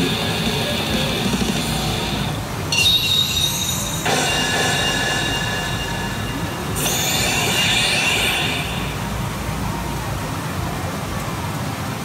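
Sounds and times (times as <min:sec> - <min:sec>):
pachinko machine electronic tones: 0:00.0 - 0:09.8.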